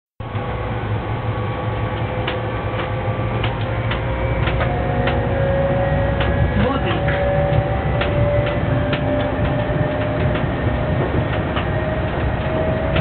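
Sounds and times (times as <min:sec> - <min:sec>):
locomotive low rumble: 0:00.2 - 0:13.0
steady whining tones: 0:00.2 - 0:13.0
scattered clicks: 0:02.0 - 0:05.3, 0:07.9 - 0:10.5, 0:11.2 - 0:13.0.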